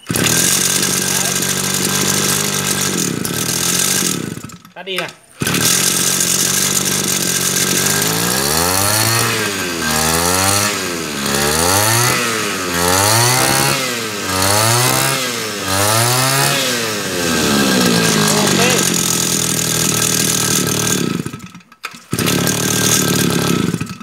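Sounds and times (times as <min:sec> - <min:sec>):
brush cutter engine revving: 0:00.0 - 0:24.0.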